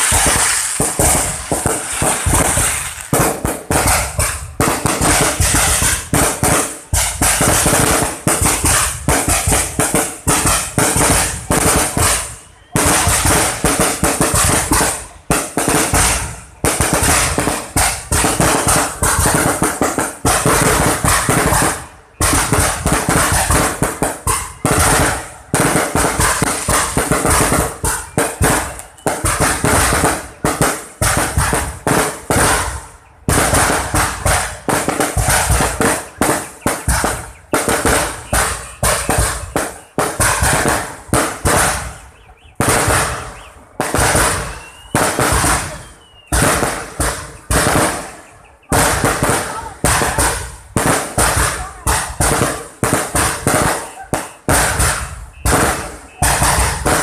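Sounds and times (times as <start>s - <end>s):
fireworks bursting and crackling: 0.0s - 57.0s.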